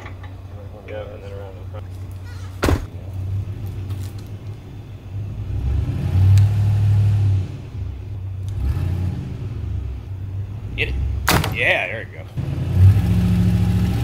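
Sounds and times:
truck engine revving: 0.0s - 14.0s
truck door slamming: 2.4s - 3.0s, 11.2s - 11.8s.

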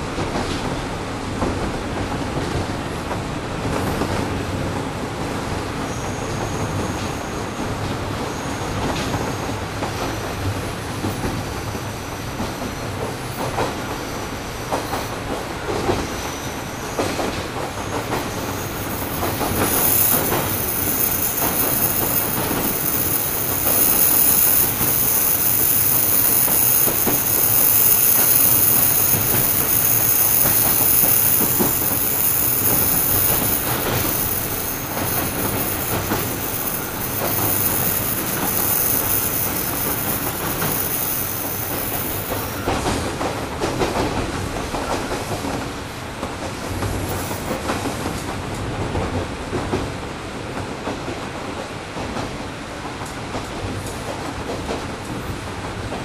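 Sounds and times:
diesel railcar engine running: 9.5s - 49.5s
wheels clicking over rail joints: 17.0s - 45.2s
high steady whine: 18.2s - 42.7s.

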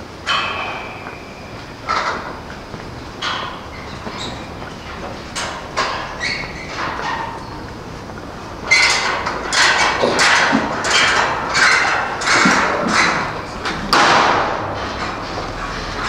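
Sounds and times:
footsteps on hard ground: 1.0s - 8.8s.

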